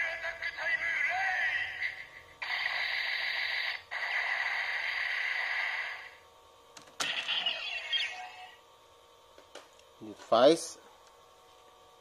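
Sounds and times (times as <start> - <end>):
toy static-like electronic sound: 0.0 - 6.2, 7.0 - 8.6.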